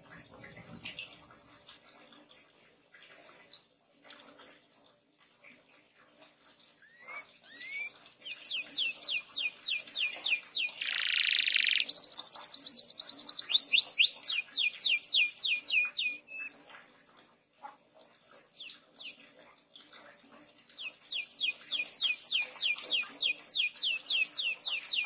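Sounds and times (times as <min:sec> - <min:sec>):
canary singing: 0:06.8 - 0:16.9, 0:20.8 - 0:25.0.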